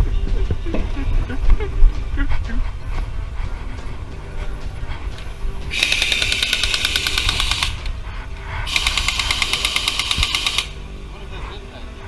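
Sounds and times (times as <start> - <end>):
pneumatic air tool rattling: 5.7 - 7.9, 8.7 - 10.8.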